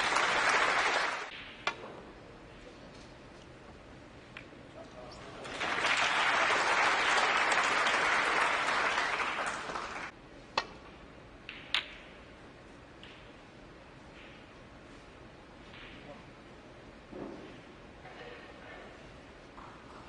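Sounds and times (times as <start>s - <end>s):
audience applause: 0.0s - 1.3s, 5.4s - 10.1s
snooker balls clicking: 10.5s - 12.2s, 12.9s - 13.4s.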